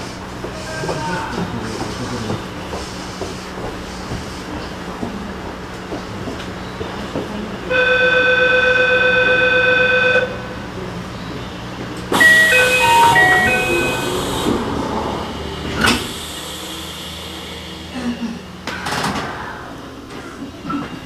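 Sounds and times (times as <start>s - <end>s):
electronic chime: 12.2s - 14.5s
short electronic melody: 12.2s - 14.8s.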